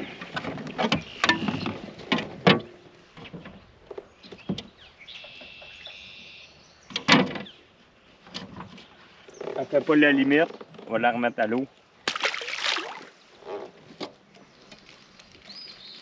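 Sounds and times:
bird calling: 4.1s - 7.7s.

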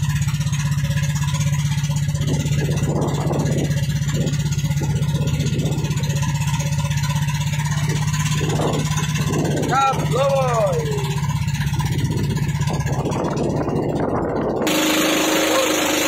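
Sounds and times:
boat engine drone: 0.0s - 16.0s
water splashing along hull: 0.0s - 16.0s.

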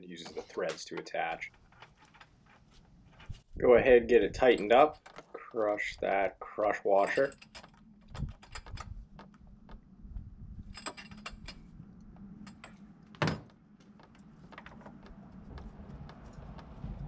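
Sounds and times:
metal tools clinking and rattling: 4.4s - 5.5s, 7.0s - 9.0s, 10.6s - 11.7s.

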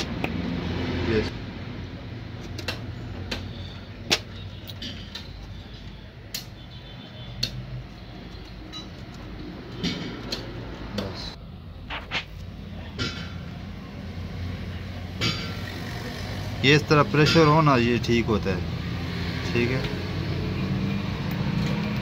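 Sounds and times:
small metallic clicks and taps: 7.4s - 7.7s, 8.3s - 11.1s
short scraping sound: 11.9s - 12.4s.

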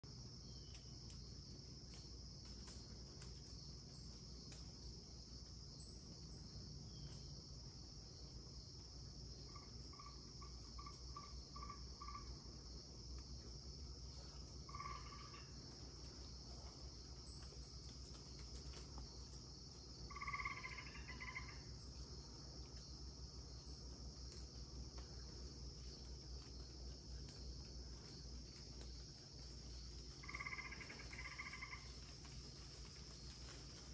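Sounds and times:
high-pitched insect chorus: 0.1s - 33.9s
frog calling: 14.7s - 15.5s, 20.1s - 21.7s, 30.2s - 31.9s.

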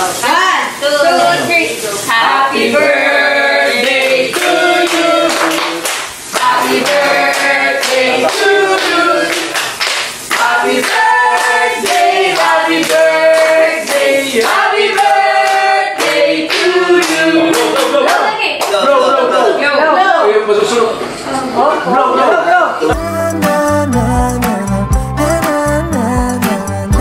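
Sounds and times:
voices singing together: 1.0s - 18.3s
hand clapping: 3.8s - 18.8s.

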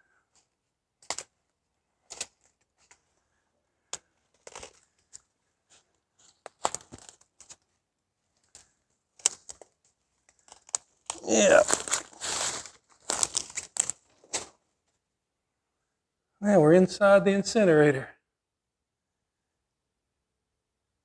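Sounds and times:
twig cracking: 1.0s - 1.3s, 2.1s - 3.0s, 3.8s - 5.3s, 6.2s - 7.7s, 8.4s - 14.6s
footsteps crunching dry leaves: 11.2s - 14.5s.

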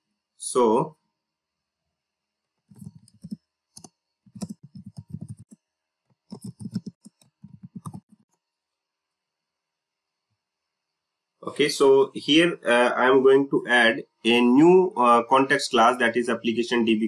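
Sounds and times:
keyboard and mouse clicking: 2.7s - 8.3s.

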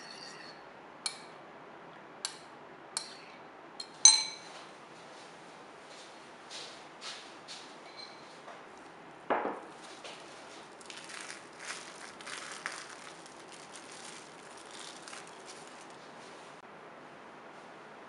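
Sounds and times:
glass bowl knocking on wooden table: 9.3s - 9.6s
cling film crinkling: 9.7s - 16.6s.

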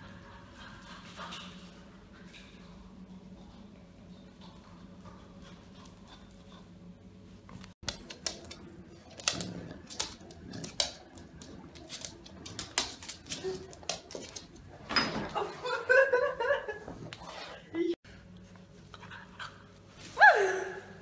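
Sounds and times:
puppy scuffling: 7.5s - 15.0s.

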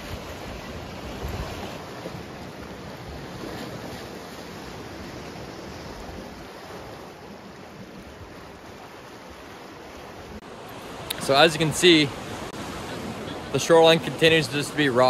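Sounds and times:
wind on microphone: 0.0s - 2.3s
waves washing against rocks: 0.0s - 15.0s.

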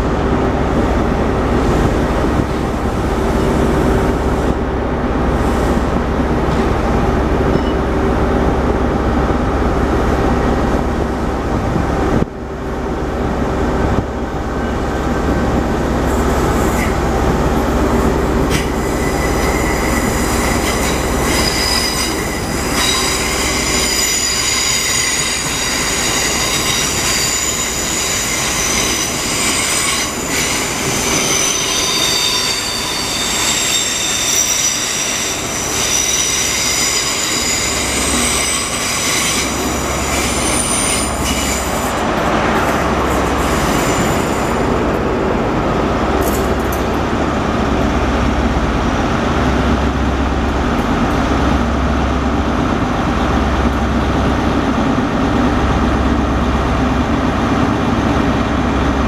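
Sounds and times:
train wheels squealing: 18.5s - 42.0s, 43.1s - 44.7s.

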